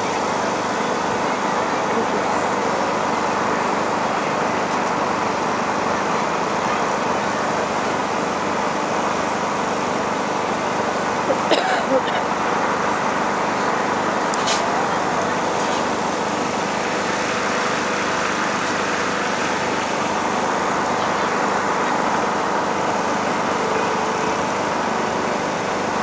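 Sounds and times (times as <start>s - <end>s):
murmur of crowd chatter: 0.0s - 26.0s.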